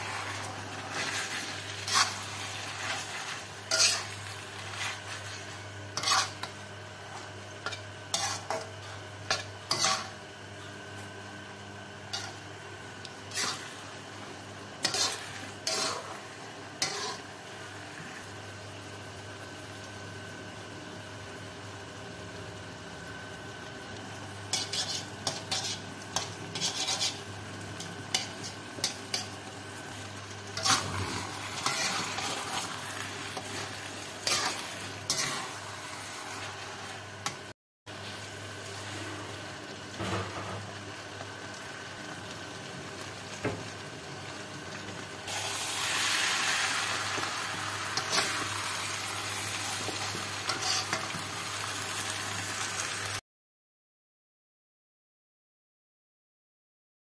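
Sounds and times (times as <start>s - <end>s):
metal spatula scraping a wok: 0.0s - 10.2s, 12.1s - 12.4s, 13.3s - 13.8s, 14.8s - 16.2s, 16.8s - 17.3s, 24.5s - 27.3s, 30.6s - 37.4s, 47.9s - 48.6s, 49.6s - 51.2s
food sizzling: 0.0s - 53.2s.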